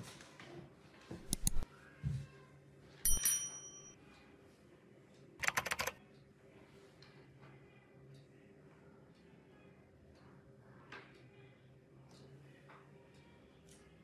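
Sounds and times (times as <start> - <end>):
keyboard clicks and taps: 1.2 - 1.6, 5.4 - 6.0.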